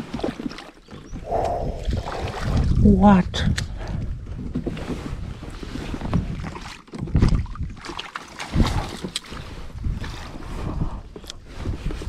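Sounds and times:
water sloshing around kayak: 0.0 - 12.0
wind on microphone: 1.0 - 7.9, 8.5 - 12.0
splashes: 1.8 - 3.0, 5.8 - 10.5.

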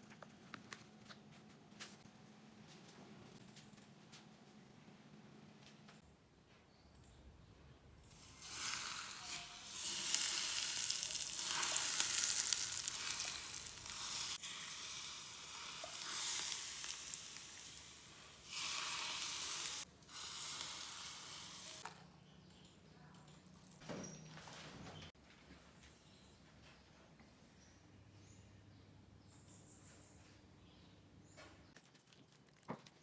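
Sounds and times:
hot oil sizzling: 8.2 - 21.9.

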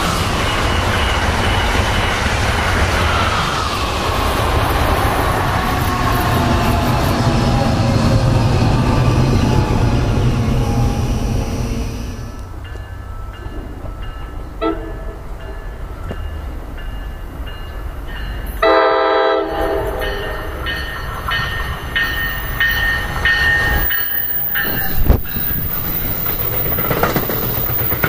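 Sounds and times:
train wheels rumbling on rails: 0.0 - 28.0
train horn blast: 14.6 - 15.2, 18.6 - 20.4.

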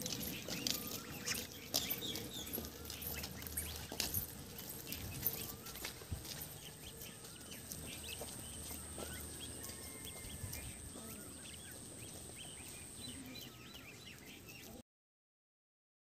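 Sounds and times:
goslings peeping: 0.0 - 14.8.

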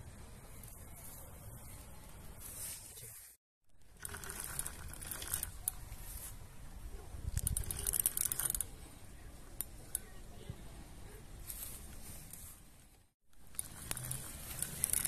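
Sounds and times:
rustling and clicking handling noise: 4.0 - 6.4, 11.4 - 15.0.

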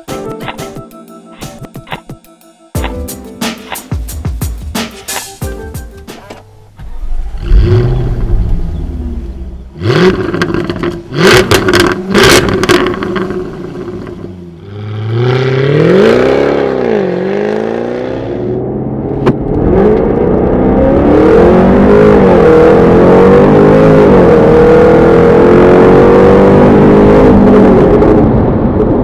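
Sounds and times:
car engine revving: 6.8 - 29.0.

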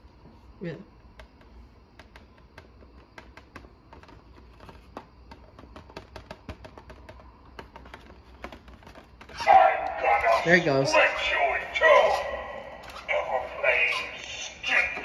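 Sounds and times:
faint clicks and taps: 1.1 - 10.0.

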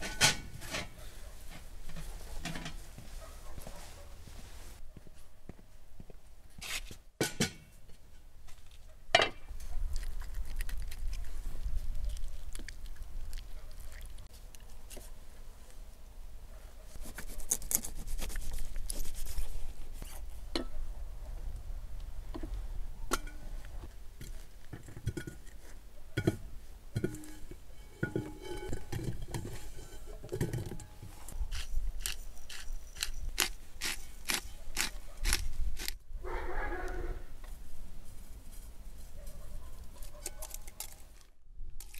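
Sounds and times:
metal pot clinks: 26.2 - 31.0.

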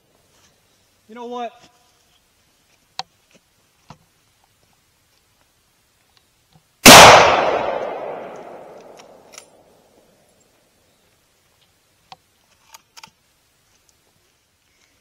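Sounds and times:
rifle shot echoing: 6.8 - 9.3.

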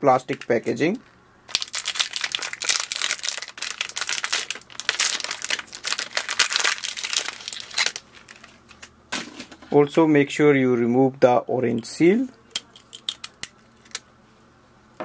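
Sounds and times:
plastic packaging crinkling and tearing: 0.3 - 8.9.

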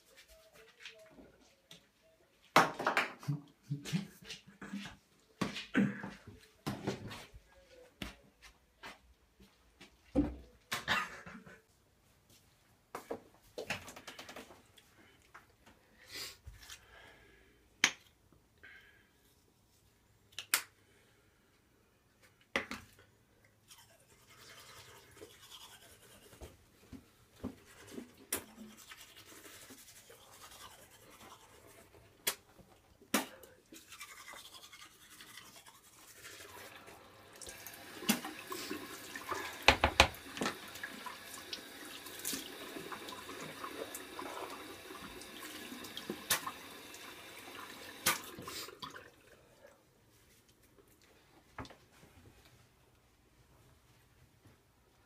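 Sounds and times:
toothbrush scrubbing teeth: 23.6 - 26.5, 27.5 - 32.2, 33.6 - 37.0.

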